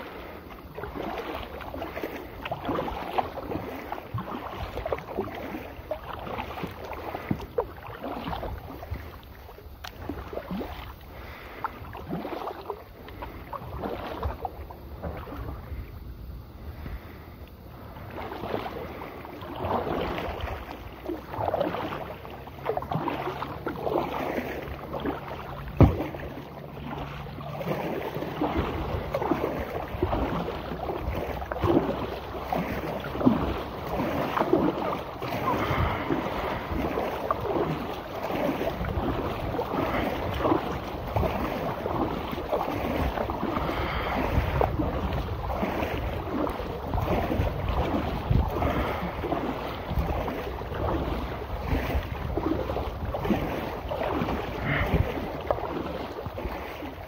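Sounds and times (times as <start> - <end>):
paddle knocking hull: 0.0 - 57.0
paddle splashing water: 0.0 - 57.0
wind on microphone: 28.4 - 57.0.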